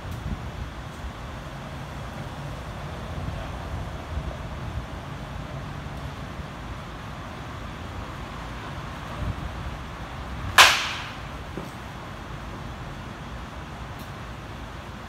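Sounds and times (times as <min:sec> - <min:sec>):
low outdoor hum: 0:00.0 - 0:15.0
baseball bat hitting ball: 0:10.5 - 0:11.8.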